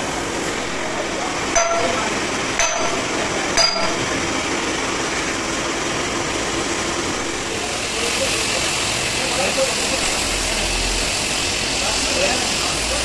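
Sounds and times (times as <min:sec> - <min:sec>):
sledgehammer striking steel: 0:01.6 - 0:04.1
steady hiss: 0:07.0 - 0:13.0.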